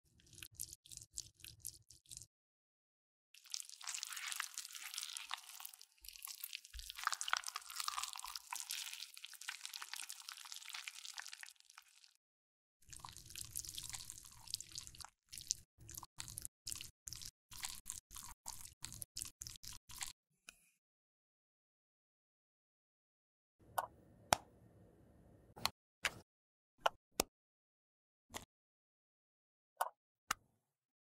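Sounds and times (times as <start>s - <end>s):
wet squishing dabs: 0.1s - 2.3s, 3.4s - 12.1s, 12.9s - 20.1s.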